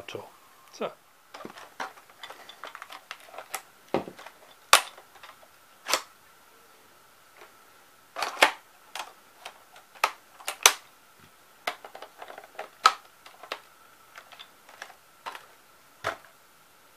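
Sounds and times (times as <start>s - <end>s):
hard plastic parts clicking: 1.3s - 6.1s, 8.2s - 10.8s, 11.6s - 16.3s.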